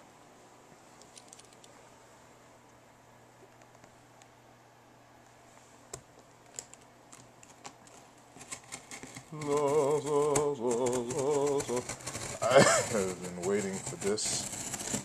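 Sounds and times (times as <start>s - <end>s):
box cutter scraping cardboard: 8.6s - 15.0s
wavering male voice: 9.3s - 14.3s.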